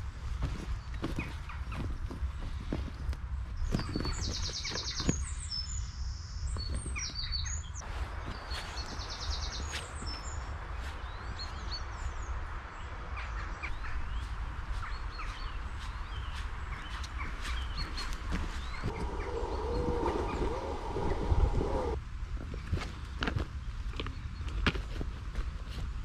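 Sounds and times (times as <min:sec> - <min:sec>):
songbirds singing: 0:00.0 - 0:24.9
steady low rumble: 0:13.7 - 0:22.4.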